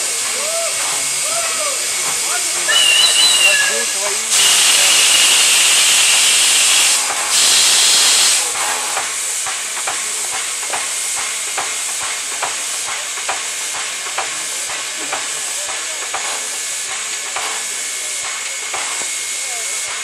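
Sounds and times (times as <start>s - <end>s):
steam engine beats: 0.0s - 20.0s
steam locomotive hissing: 0.0s - 20.0s.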